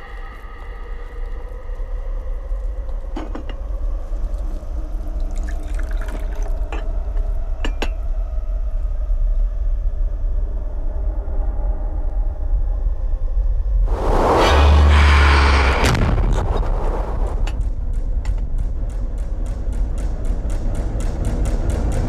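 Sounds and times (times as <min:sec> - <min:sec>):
low horror soundtrack drone: 0:00.0 - 0:22.0
water pouring into a glass: 0:05.2 - 0:06.7
light glass clinks: 0:07.6 - 0:08.0.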